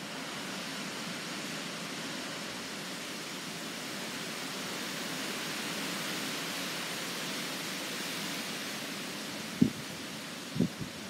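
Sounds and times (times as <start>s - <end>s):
strong wind through trees: 0.0s - 11.0s.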